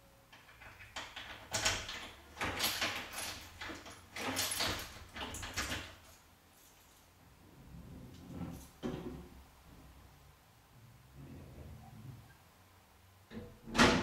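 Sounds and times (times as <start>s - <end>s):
door sliding: 7.6s - 9.8s.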